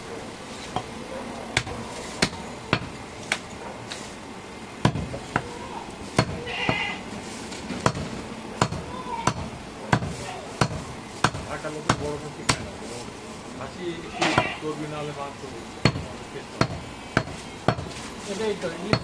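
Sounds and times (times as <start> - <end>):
knife chopping meat on wood: 1.5 - 3.4, 4.8 - 5.5, 6.2 - 6.9, 7.8 - 12.7, 15.8 - 18.0.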